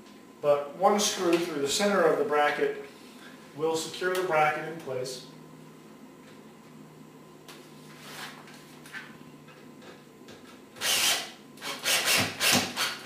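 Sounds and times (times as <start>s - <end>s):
screw gun driving a screw: 10.8s - 13.0s.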